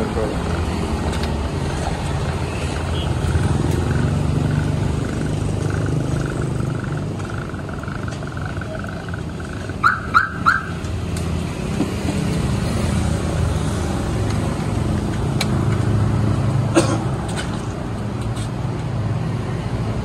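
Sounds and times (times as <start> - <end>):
road traffic rumble: 0.0 - 20.0.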